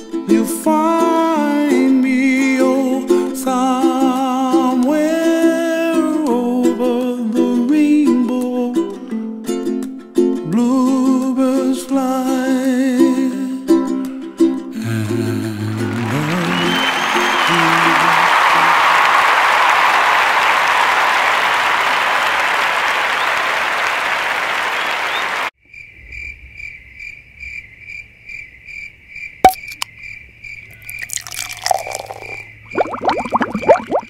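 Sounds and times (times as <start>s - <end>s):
applause: 15.4s - 25.5s
crickets chirping: 24.8s - 34.0s.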